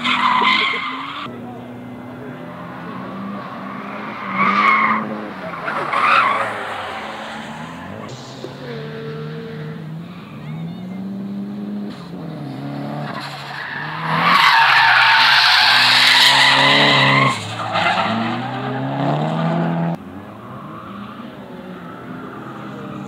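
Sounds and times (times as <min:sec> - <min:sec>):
race car engine revving: 0:00.0 - 0:23.0
tyres squealing: 0:03.7 - 0:09.2, 0:13.1 - 0:18.9.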